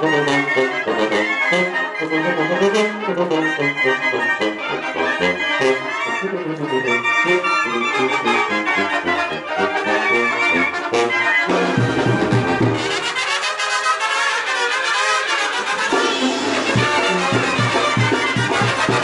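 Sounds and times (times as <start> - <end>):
brass band dance music: 0.0 - 19.0
trumpets: 0.0 - 19.0.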